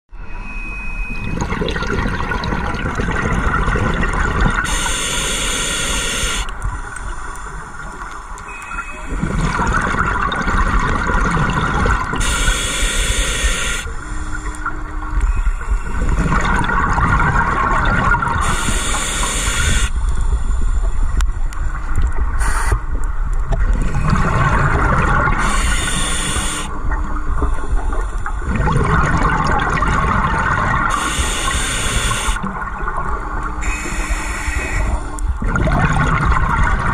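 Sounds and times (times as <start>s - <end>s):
exhaled bubbles gurgling: 1.1s - 36.9s
diver breathing through regulator: 4.7s - 7.8s, 12.2s - 14.6s, 18.4s - 20.9s, 25.4s - 26.7s, 30.9s - 32.4s.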